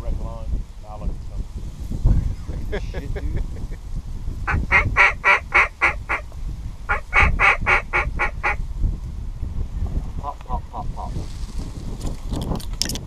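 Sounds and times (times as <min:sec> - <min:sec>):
waterfowl calls: 0:04.5 - 0:06.2, 0:06.9 - 0:08.6, 0:10.2 - 0:11.1.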